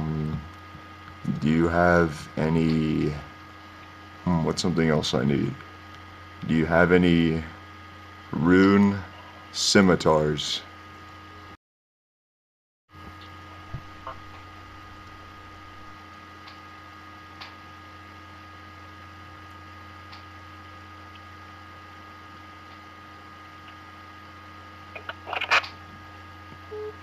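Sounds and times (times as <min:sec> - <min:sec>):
electrical mains hum: 0:00.0 - 0:11.6, 0:12.9 - 0:27.0.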